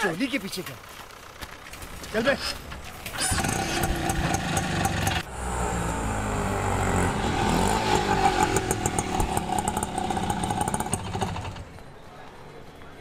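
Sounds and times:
small vehicle engine running: 3.1 - 12.0
clatter: 7.9 - 11.8.

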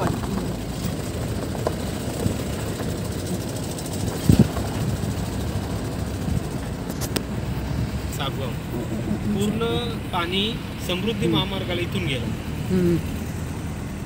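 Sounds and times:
vehicle bump: 0.0 - 7.4
road noise: 0.0 - 14.0
vehicle engine rumble: 0.0 - 14.0.

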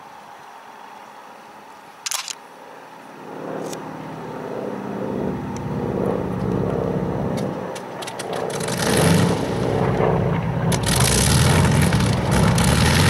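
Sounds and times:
aircraft engine turning over and starting: 3.2 - 13.0.

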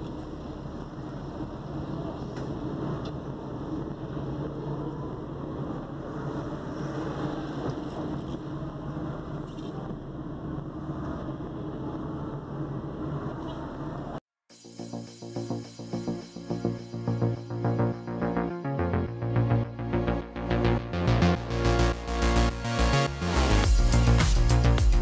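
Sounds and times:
car engine and road noise: 0.0 - 14.2.

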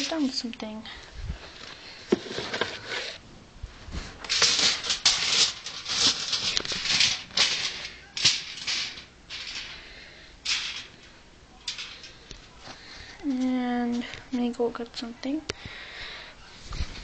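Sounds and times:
aluminium foil crinkling: 0.0 - 0.8, 1.4 - 3.2, 4.0 - 14.1.

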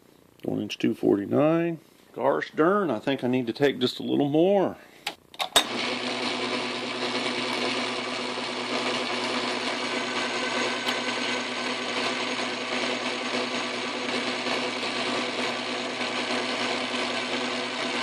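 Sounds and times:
metal lathe cutting steel: 5.6 - 18.0.

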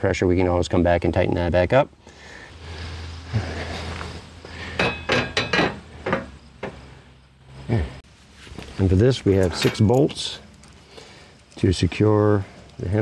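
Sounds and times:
metal clanks and knocks: 4.7 - 6.8, 9.4 - 10.2.

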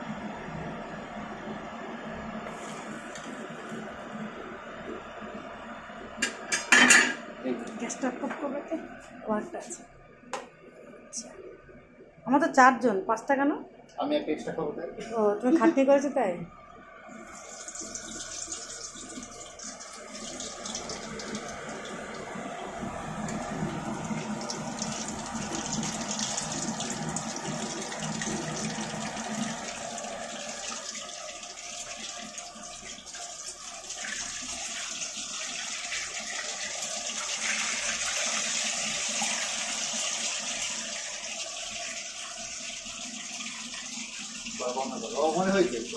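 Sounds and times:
hot oil sizzling: 2.5 - 4.5, 17.1 - 45.9.

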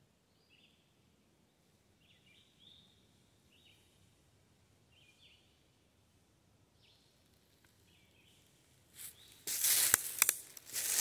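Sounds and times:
faint bird chirps: 0.2 - 4.1, 6.7 - 9.4
rustling and crunching of dry leaves: 8.9 - 11.0.

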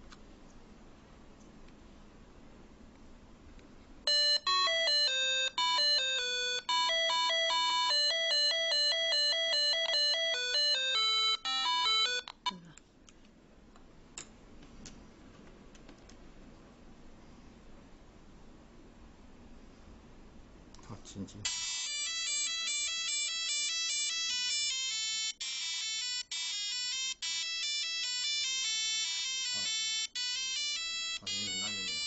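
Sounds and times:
electronic ringtone melody: 4.1 - 12.5, 21.5 - 32.0.

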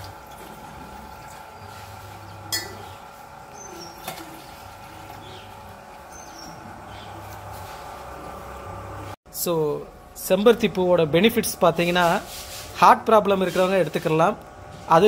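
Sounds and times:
cooktop humming: 0.0 - 9.2, 9.8 - 15.0
cycling low buzz: 0.0 - 15.0
glass clinking: 2.5 - 3.0.

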